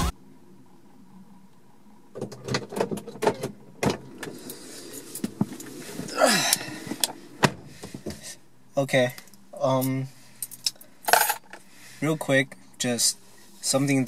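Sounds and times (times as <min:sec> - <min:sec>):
car door shutting: 0:02.2 - 0:08.3
rustle of leather seat: 0:04.2 - 0:08.4.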